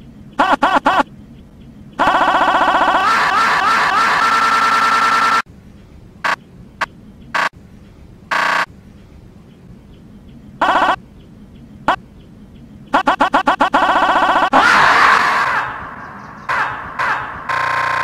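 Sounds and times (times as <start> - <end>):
stuttered pitch-shifted screams: 2.0 - 5.4, 13.0 - 18.0
marmot screaming: 14.5 - 15.8.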